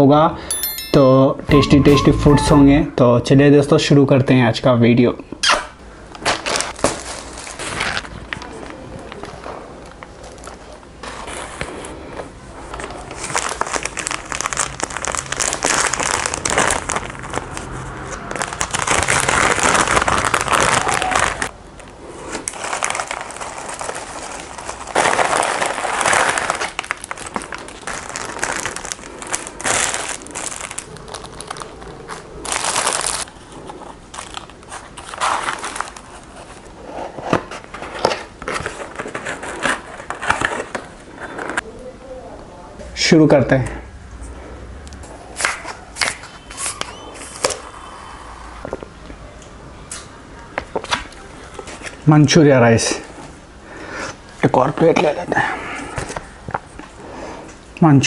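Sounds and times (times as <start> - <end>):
paper and cardboard crinkling: 6.2 - 12.0, 12.7 - 21.5, 22.3 - 41.6.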